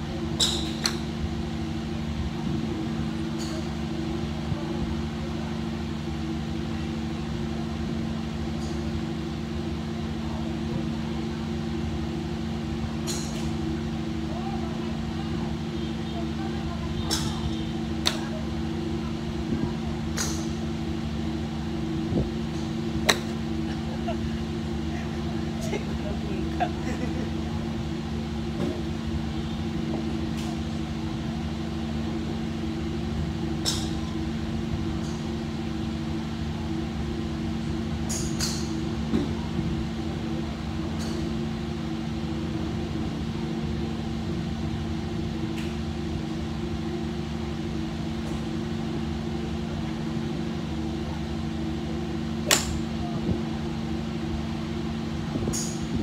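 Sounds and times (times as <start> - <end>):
steady hum: 0.0 - 56.0
golf club striking ball: 23.0 - 23.4, 52.4 - 52.9.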